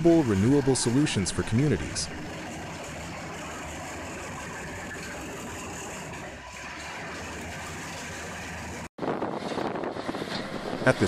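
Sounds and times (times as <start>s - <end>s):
screening machine droning: 0.0s - 8.9s.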